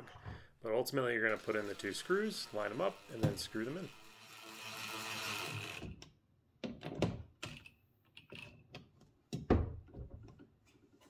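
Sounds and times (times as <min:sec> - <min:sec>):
impact driver running: 0:01.3 - 0:06.0.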